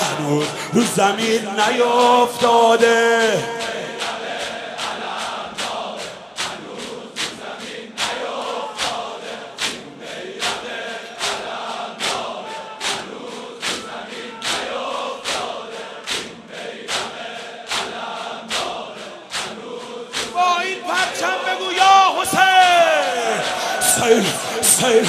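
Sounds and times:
man singing through a microphone: 0.0s - 4.6s, 20.3s - 25.0s
crowd beating chests in unison: 0.0s - 25.0s
group chanting: 0.0s - 25.0s.

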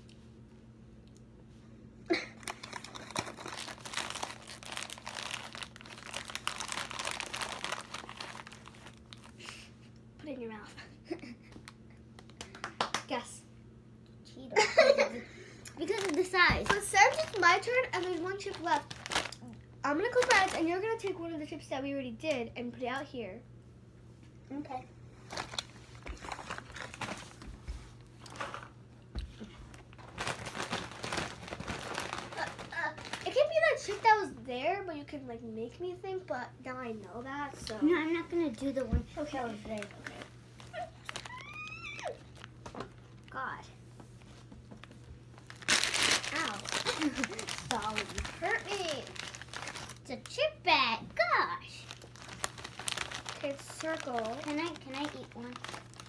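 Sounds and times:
plastic bag crinkling: 2.1s - 9.7s, 15.8s - 20.9s, 25.2s - 27.4s, 29.7s - 34.2s, 39.2s - 43.1s, 44.8s - 50.4s, 51.6s - 56.0s.

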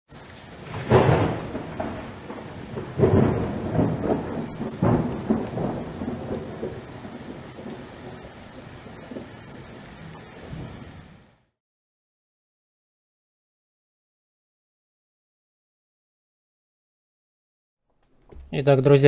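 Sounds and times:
steady rain: 0.1s - 11.6s
thunder claps rumbling: 0.2s - 11.4s.

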